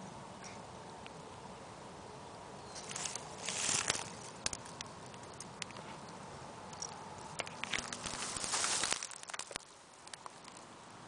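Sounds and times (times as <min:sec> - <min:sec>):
dry reeds rustling: 0:02.7 - 0:06.1, 0:06.7 - 0:10.7.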